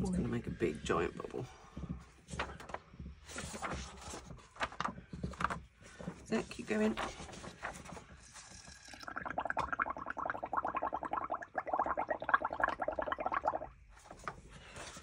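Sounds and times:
bubbling gurgle through straw: 0:08.5 - 0:14.1.

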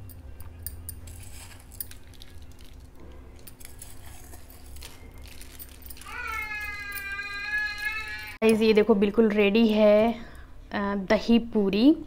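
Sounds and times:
bangles jingling: 0:00.0 - 0:08.4
low background hum: 0:00.0 - 0:12.0.

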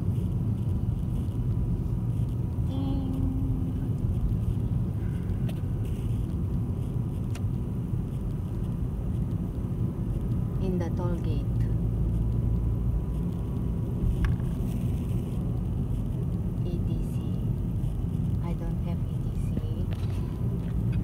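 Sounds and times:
car interior road rumble: 0:00.0 - 0:21.0.

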